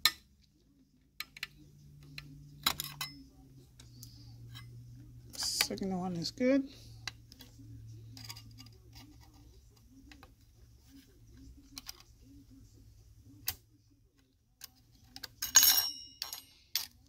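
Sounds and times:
metallic clinks: 15.4s - 17.0s
metallic ring: 15.4s - 17.0s.

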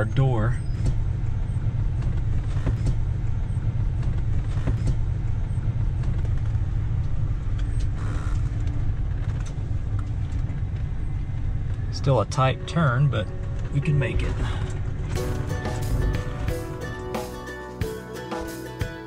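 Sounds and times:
engine and road noise rumble: 0.0s - 19.0s.

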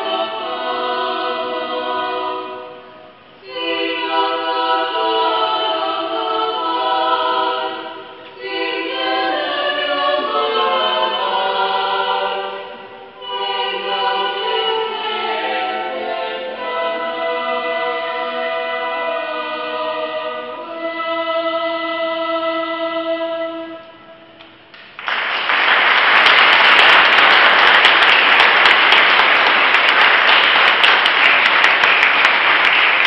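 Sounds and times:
choir singing: 0.0s - 24.3s
audience applause: 24.8s - 33.0s.

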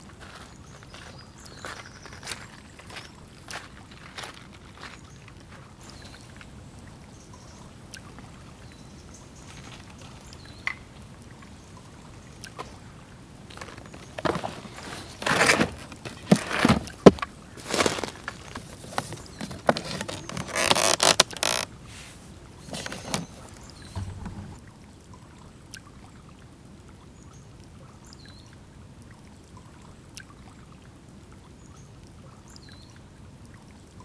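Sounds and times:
camp gear scraping and rustling: 13.5s - 24.6s
wooden lid being lifted: 22.7s - 24.6s
sharp knock: 24.0s - 24.6s.

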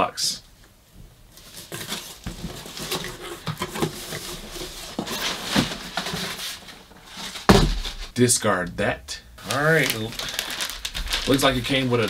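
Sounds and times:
packing paper rustling: 1.3s - 8.1s, 9.4s - 12.0s
loud thump: 7.5s - 8.0s.

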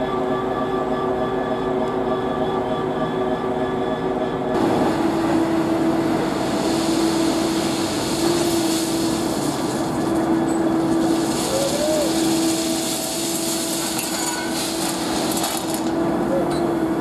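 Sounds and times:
diesel machinery humming: 0.0s - 17.0s
hiss: 5.6s - 15.8s.

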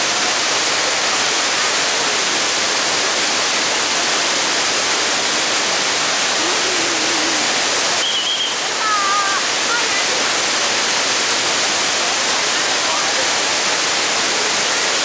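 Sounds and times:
water rushing from spillway: 0.0s - 15.0s.

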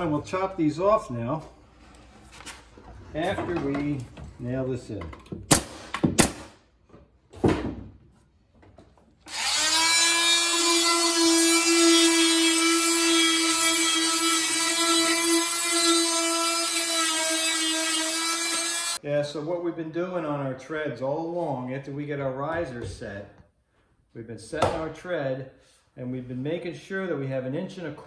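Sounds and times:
nail gun shots: 5.5s - 6.6s
oscillating multi-tool buzzing: 9.3s - 19.0s.

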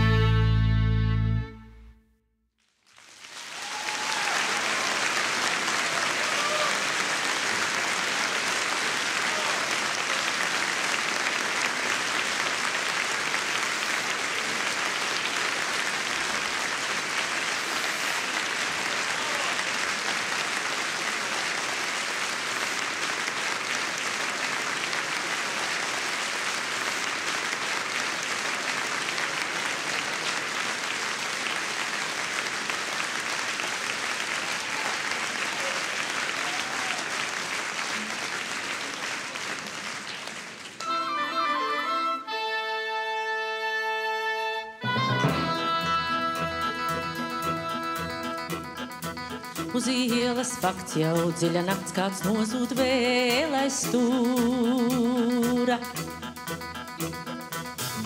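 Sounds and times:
audience applauding: 2.6s - 41.8s, 44.8s - 52.6s.

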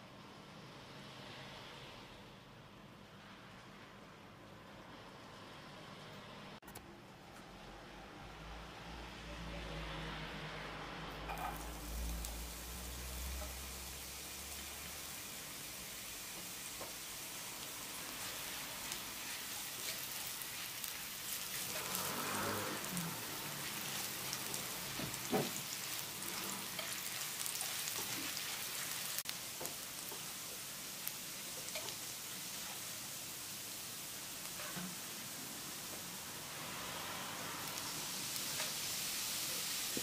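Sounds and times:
onion sizzling in hot oil: 11.2s - 40.0s.

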